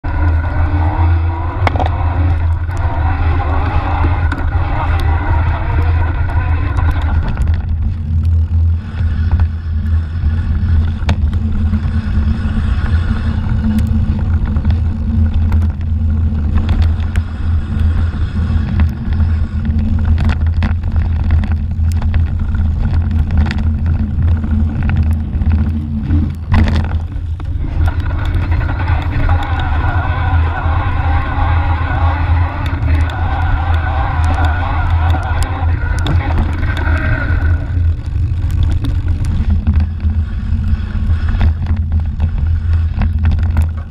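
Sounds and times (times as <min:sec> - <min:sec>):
tyre rumble: 0:00.0 - 0:43.9
wind on microphone: 0:00.0 - 0:43.9
bike knocks and rattles: 0:10.7 - 0:12.0, 0:18.6 - 0:29.3.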